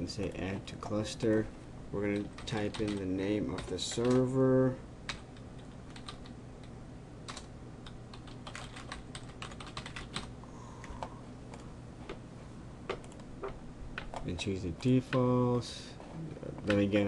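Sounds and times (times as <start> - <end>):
computer keyboard typing: 2.0 - 4.3, 5.1 - 10.3, 12.9 - 15.3.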